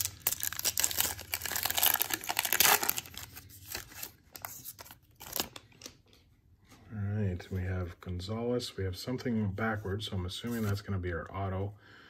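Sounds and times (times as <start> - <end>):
wrapper crinkling: 0.0 - 5.9.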